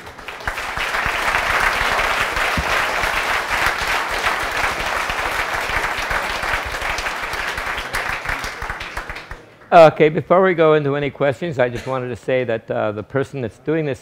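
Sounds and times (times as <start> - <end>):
audience applauding: 0.0 - 9.7.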